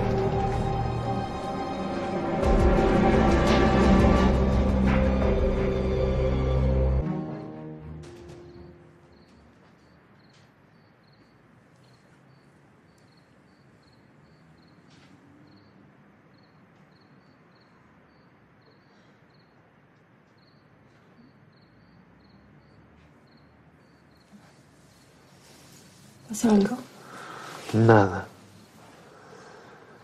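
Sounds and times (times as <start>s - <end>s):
cricket chirping: 8.0s - 30.0s.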